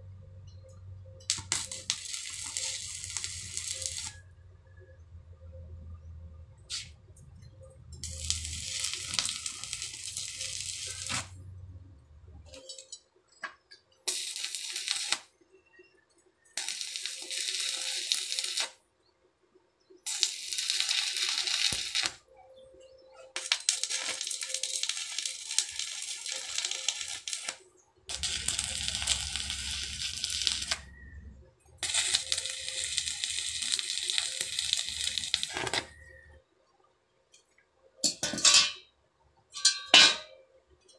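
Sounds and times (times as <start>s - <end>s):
welding arc crackling: 1.3s - 4.2s, 8.0s - 11.4s, 14.0s - 15.3s, 16.6s - 18.8s, 20.1s - 22.2s, 23.3s - 31.1s, 31.8s - 36.1s.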